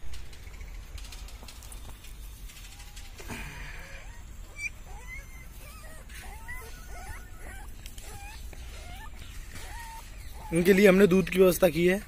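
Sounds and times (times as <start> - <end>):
puppies whimpering and squeaking: 2.5 - 12.0.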